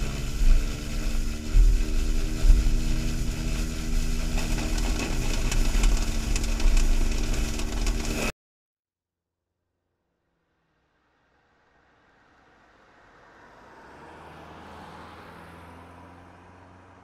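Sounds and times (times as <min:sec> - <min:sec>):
motor hum: 0:00.0 - 0:08.3
sweeper brushes scrubbing pavement: 0:00.0 - 0:08.3
wind rumbling on microphone: 0:00.0 - 0:08.3.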